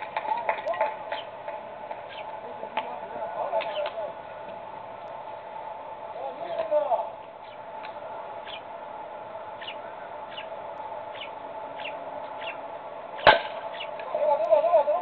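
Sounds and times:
baseball bat cracking ball: 0:13.2 - 0:13.7.

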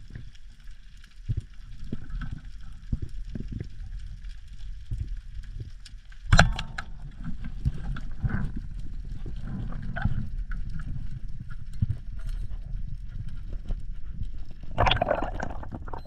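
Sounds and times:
underwater rumble of moving water: 0:00.0 - 0:16.0
sharp underwater clicks: 0:05.8 - 0:16.0.

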